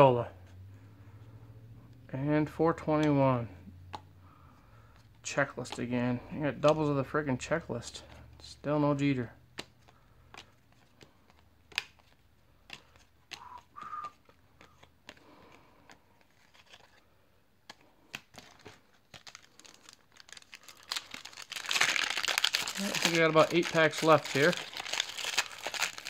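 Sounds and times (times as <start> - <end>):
cards flicked snapping: 9.5 - 15.2
foil wrapper tearing: 19.1 - 26.0.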